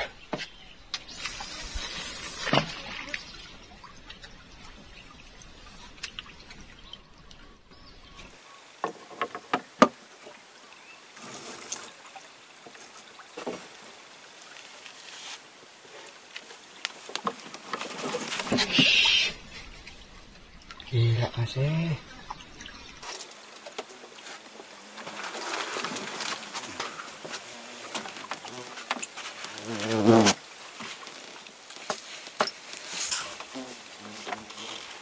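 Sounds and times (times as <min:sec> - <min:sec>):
water trickling and lapping: 0:00.0 - 0:35.0.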